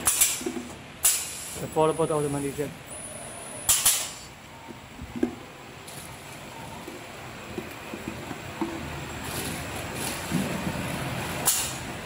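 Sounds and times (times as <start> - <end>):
bottle packing machine running: 0.0 - 12.0
compressed air hiss: 1.0 - 1.7.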